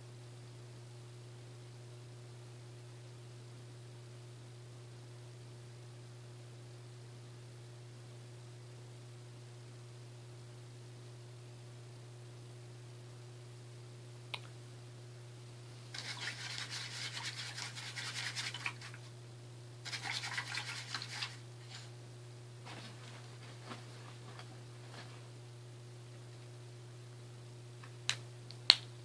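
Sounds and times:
steady low hum: 0.0 - 29.0
rapid scratchy scrubbing: 15.9 - 19.0, 19.9 - 21.9.

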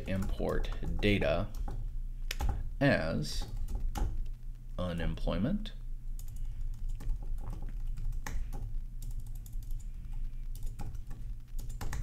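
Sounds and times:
keyboard typing clicks: 0.0 - 2.6, 6.2 - 12.0
steady low hum: 0.0 - 12.0.

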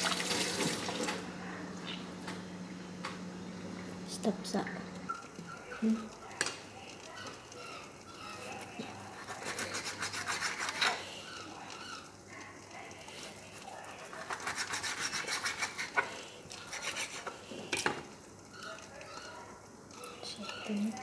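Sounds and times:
knife sawing through fish: 9.1 - 11.1, 14.2 - 17.4.

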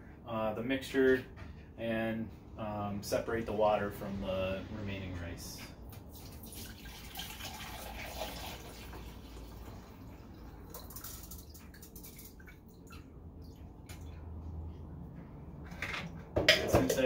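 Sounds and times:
water dripping: 5.9 - 14.5
water pouring through a strainer: 6.1 - 13.6.

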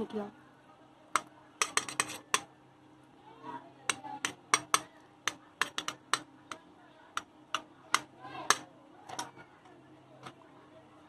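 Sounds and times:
metal spoon tapping on steel plate: 1.2 - 2.5, 3.9 - 6.6.

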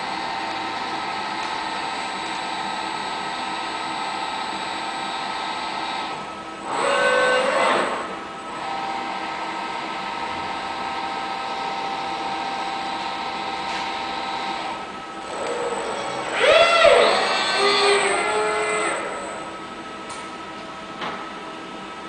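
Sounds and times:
robot arm servos whining: 6.6 - 8.1, 15.3 - 19.5.

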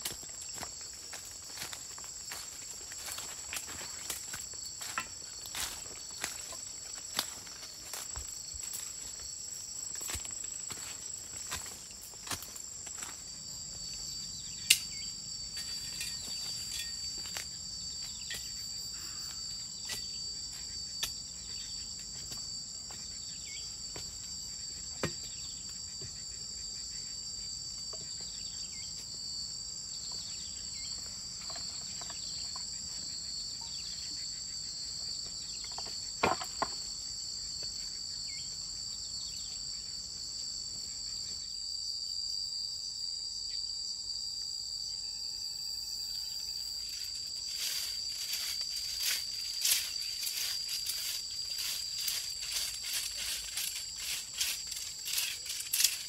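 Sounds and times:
high-pitched insect chorus: 0.0 - 56.0.

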